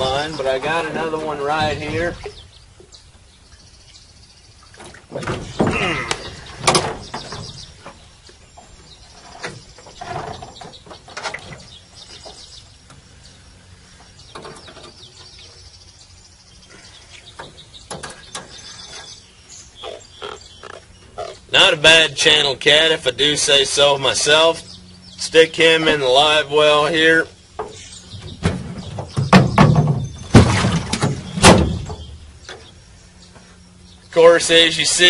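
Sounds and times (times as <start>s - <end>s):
knocks and rustles: 4.7s - 13.0s, 14.0s - 15.3s, 17.3s - 19.2s, 27.6s - 32.7s
fish splashing and thrashing: 28.3s - 32.1s.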